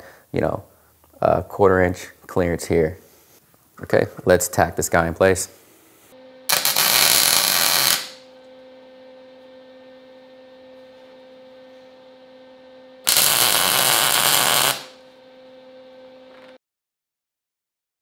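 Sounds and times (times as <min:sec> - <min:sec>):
steady low hum: 0:00.0 - 0:16.6
welding arc burst: 0:06.5 - 0:08.3, 0:13.0 - 0:15.0.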